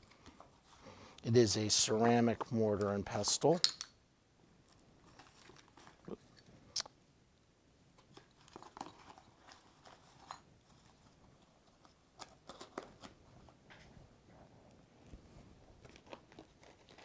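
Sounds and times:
packing paper rustling: 8.1 - 13.6, 15.8 - 17.0.

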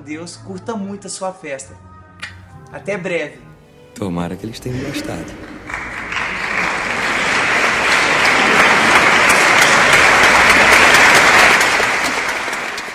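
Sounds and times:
crowd applauding: 4.6 - 12.9.

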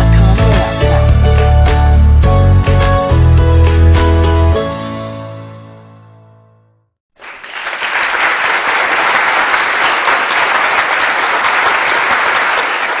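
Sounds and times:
background music: 0.0 - 6.7
applause: 7.2 - 13.0.

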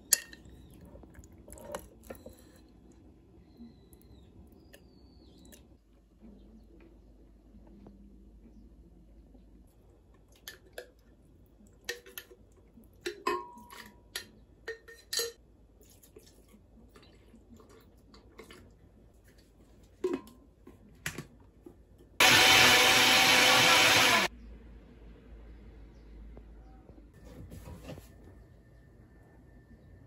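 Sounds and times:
kitchenware clinking: 13.0 - 15.4
blender running: 22.2 - 24.3.

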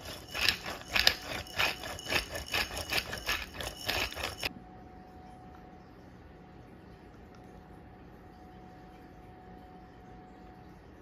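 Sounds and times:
pepper mill grinding: 0.0 - 4.5.

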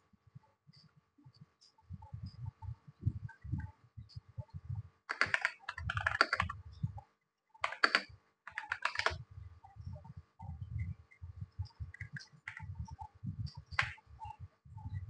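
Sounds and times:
typing on a keyboard: 5.1 - 6.6, 7.6 - 9.2, 11.9 - 12.7.

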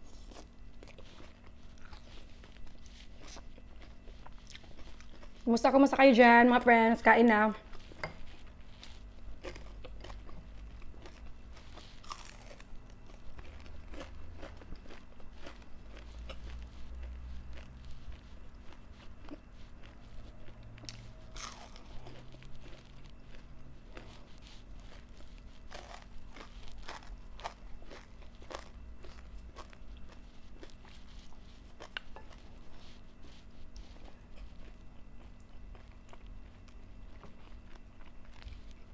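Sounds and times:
chewing and crunching food: 0.0 - 38.9.

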